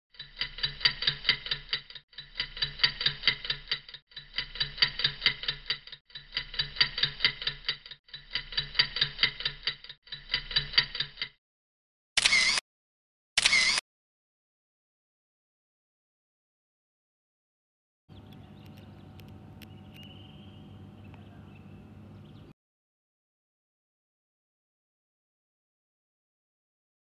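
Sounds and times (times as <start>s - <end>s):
clock-like ticking: 0.2s - 11.3s
camera shutter click: 12.2s - 12.6s, 13.4s - 13.8s.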